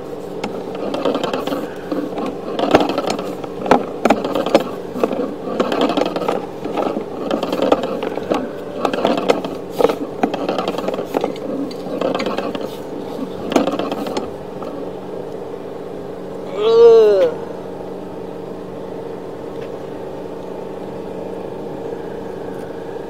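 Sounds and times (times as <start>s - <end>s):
cable scraping and clattering in pipe: 0.0s - 15.0s
steady hum: 0.0s - 23.0s.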